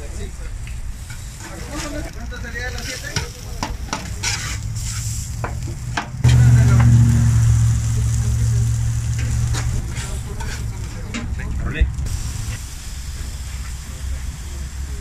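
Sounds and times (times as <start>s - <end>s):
meat sizzling: 0.9s - 15.0s
metal spatula scraping griddle: 1.0s - 5.3s, 9.1s - 11.3s
loud low hum: 6.2s - 10.8s.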